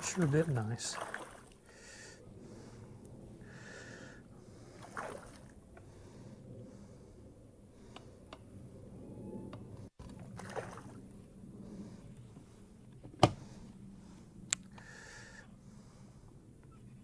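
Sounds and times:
light click: 14.5s - 14.8s.

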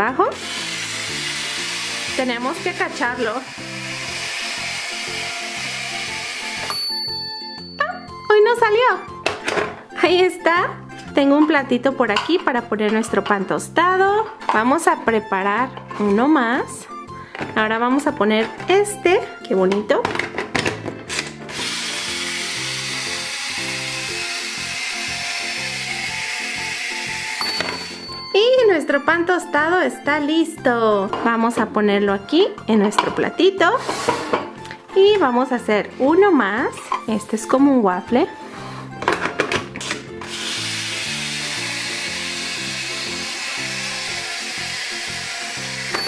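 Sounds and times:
background music: 0.0s - 46.0s
toy toaster hiss: 0.4s - 6.7s, 21.5s - 28.0s, 40.2s - 46.0s
plastic toy toaster clicks: 41.4s - 46.0s.

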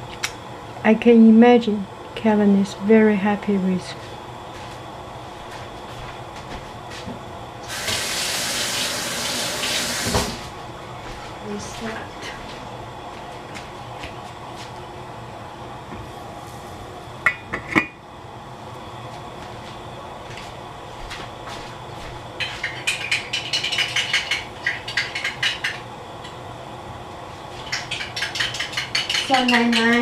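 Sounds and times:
pan ticking while heating: 22.4s - 26.4s, 27.7s - 30.0s.

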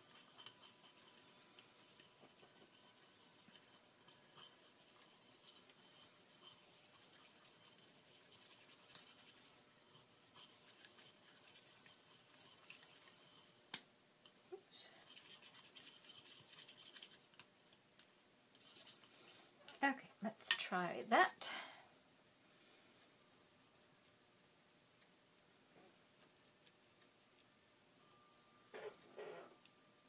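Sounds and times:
paintbrush brushing on palette: 0.0s - 13.7s, 14.3s - 17.8s, 18.5s - 19.5s, 23.1s - 24.1s.

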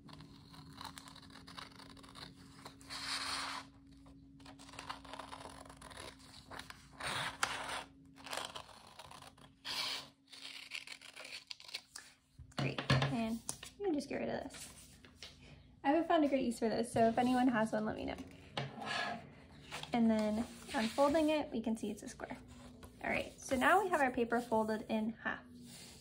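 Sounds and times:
scissors cutting paper: 0.0s - 3.6s, 4.4s - 12.2s.

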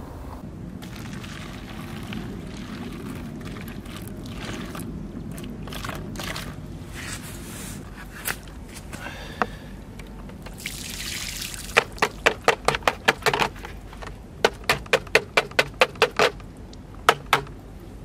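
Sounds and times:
water pouring through sieve: 0.8s - 7.8s, 10.5s - 12.2s
plastic bowl knocking on sieve: 17.1s - 17.5s.

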